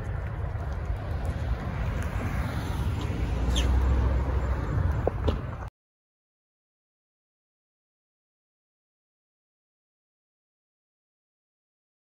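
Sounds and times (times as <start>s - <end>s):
traffic rumble: 0.0s - 5.7s
vehicle passing: 0.0s - 5.7s.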